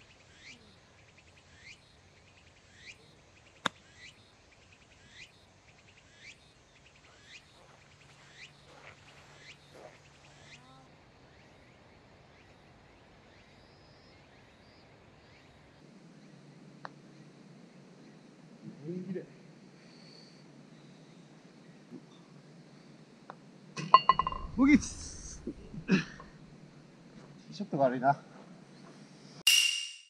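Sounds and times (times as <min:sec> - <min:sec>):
bird chirping: 0:00.0 - 0:17.4, 0:23.8 - 0:26.5
golf club striking ball: 0:23.8 - 0:24.6.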